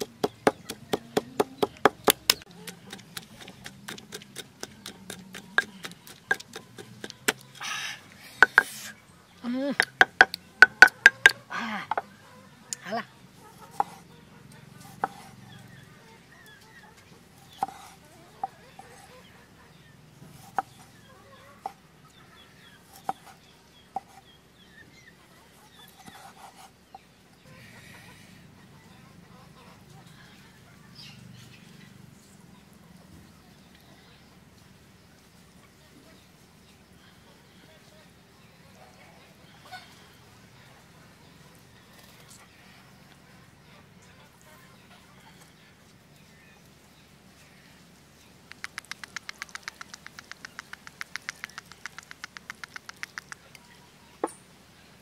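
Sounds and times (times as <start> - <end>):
cleaver chopping on wooden board: 0.0 - 7.5, 9.8 - 12.0
pestle pounding in stone mortar: 0.0 - 7.5, 8.4 - 8.8, 9.8 - 12.0.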